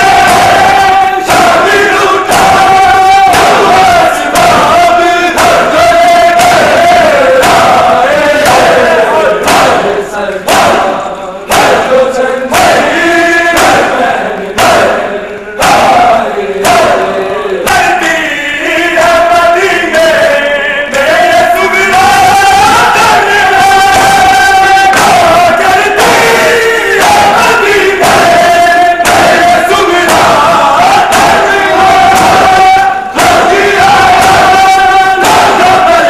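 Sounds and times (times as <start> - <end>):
hands striking chests: 0.0 - 14.0
men chanting in unison: 0.0 - 36.0.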